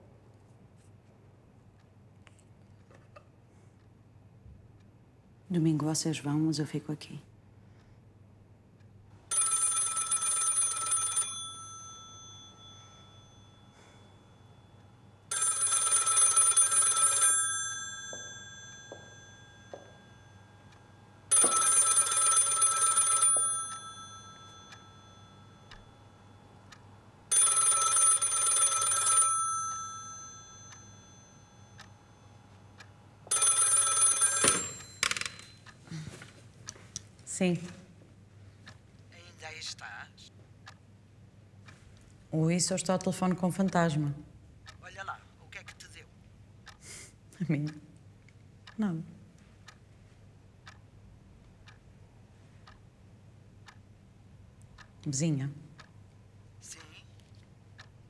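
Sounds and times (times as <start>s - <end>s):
telephone bell ringing: 9.3s - 26.4s, 27.3s - 32.6s, 33.3s - 35.6s.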